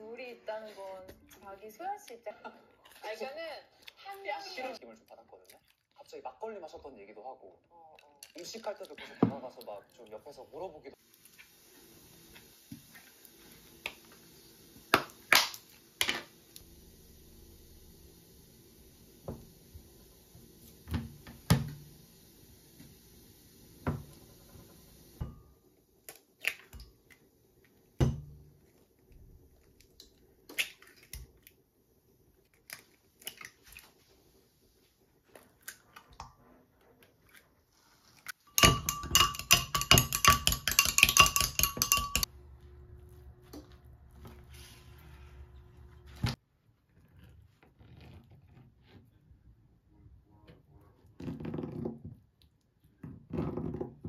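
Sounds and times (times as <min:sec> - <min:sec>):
eggs beaten in glass cup: 0:38.5 - 0:42.3
faint low hum: 0:42.3 - 0:46.3.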